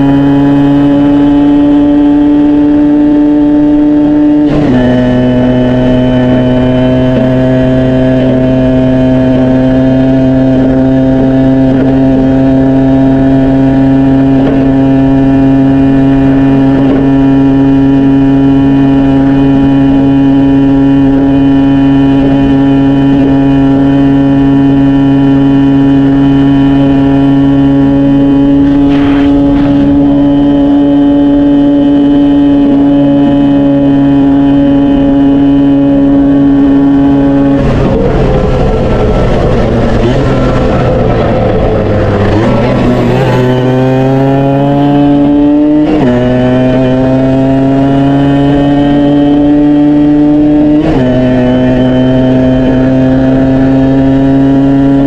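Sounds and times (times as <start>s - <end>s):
two-stroke motorcycle engine running: 0.0s - 55.0s.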